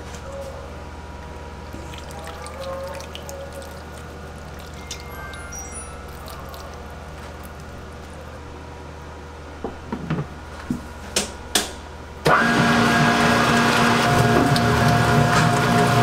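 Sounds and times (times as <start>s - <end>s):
low steady hum: 0.0s - 10.7s
mixer motor whining: 12.3s - 16.0s.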